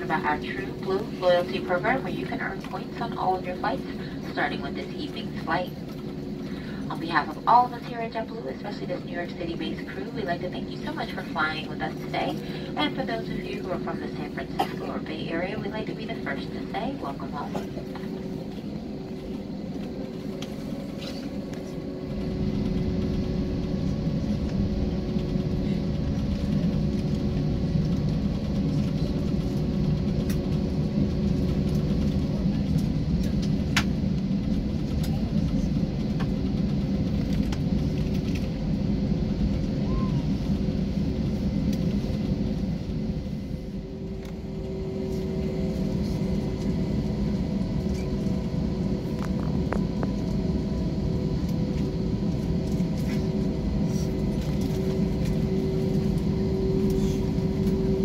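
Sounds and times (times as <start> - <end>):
jet engines rumbling: 0.0 - 58.0.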